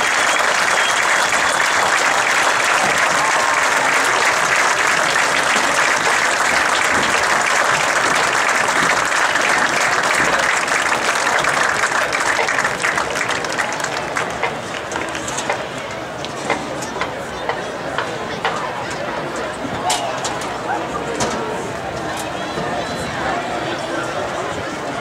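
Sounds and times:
stadium crowd applauding: 0:00.0 - 0:15.6.

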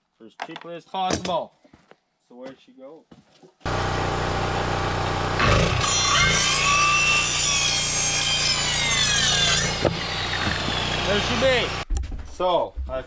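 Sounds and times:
circular saw cutting wood: 0:03.7 - 0:11.8.

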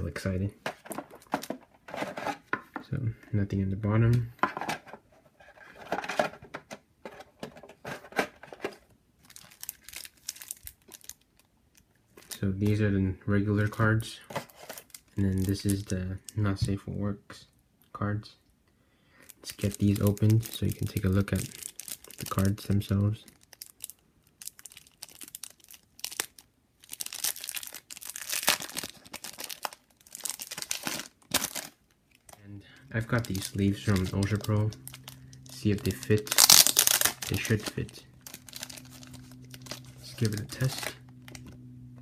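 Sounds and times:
cellophane wrap crinkling: 0:08.4 - 0:12.4, 0:19.3 - 0:41.6.

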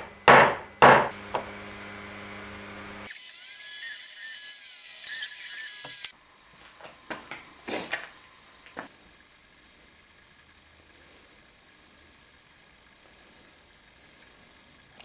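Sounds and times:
router spindle whining: 0:01.2 - 0:06.1.

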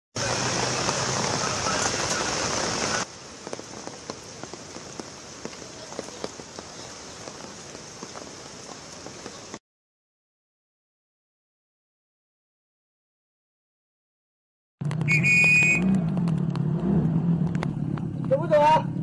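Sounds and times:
heavy rain hissing: 0:00.2 - 0:09.6
raindrops tapping: 0:00.2 - 0:09.6, 0:15.9 - 0:16.8, 0:17.4 - 0:18.5.

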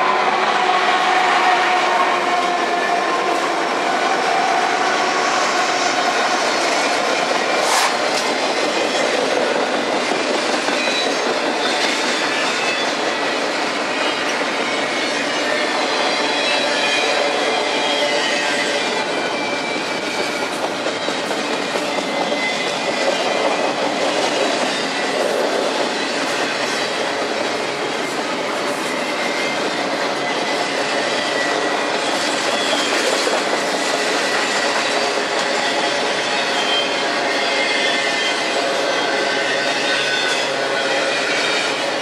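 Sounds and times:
train wheels clattering on rail: 0:01.2 - 0:42.0
faint wheel squeal: 0:33.8 - 0:41.9.

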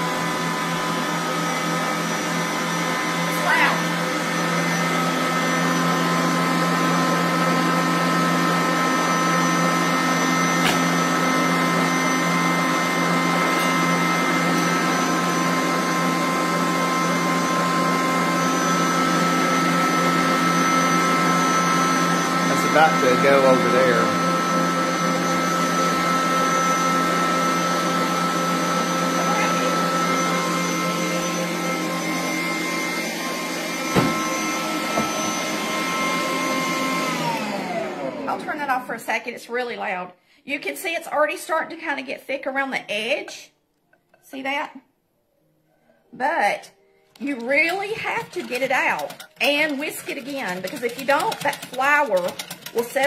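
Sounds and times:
stand mixer motor whine: 0:00.0 - 0:38.8, 0:47.5 - 0:53.0
knock: 0:33.9 - 0:34.2.

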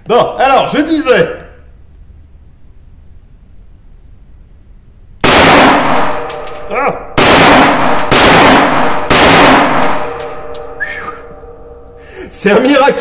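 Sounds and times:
rifle shots ringing indoors: 0:05.2 - 0:12.0.

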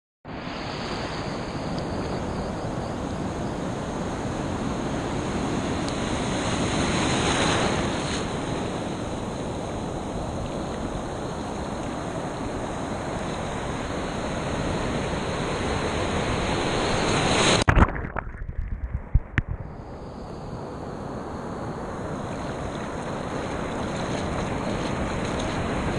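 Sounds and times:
ocean waves breaking: 0:03.0 - 0:18.0, 0:21.8 - 0:25.9
muffled water splashing thumps: 0:17.6 - 0:19.7.

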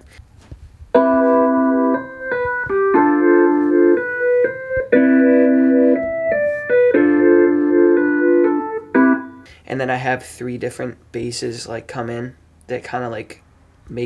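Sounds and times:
electric piano chords: 0:01.0 - 0:09.5.

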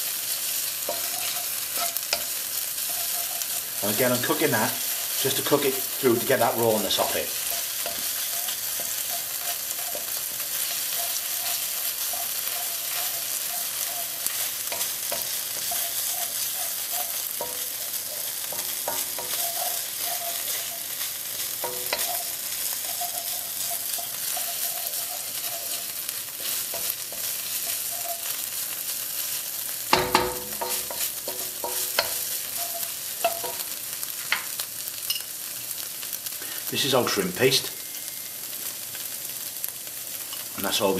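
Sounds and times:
vegetables sizzling in hot oil: 0:00.0 - 0:40.9
utensil scraping a pan: 0:00.8 - 0:28.5, 0:29.9 - 0:33.7
loud knocks on a pan: 0:30.0 - 0:30.8.

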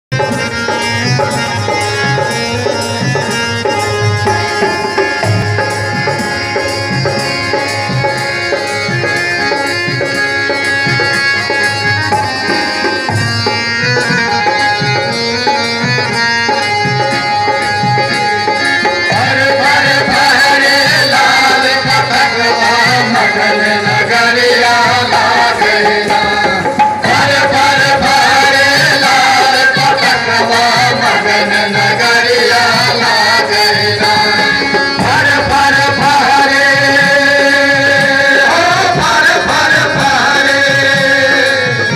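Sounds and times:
hand drum rhythm: 0:00.1 - 0:41.9
harmonium holding notes: 0:00.1 - 0:41.9
men singing in a group: 0:11.7 - 0:41.9.

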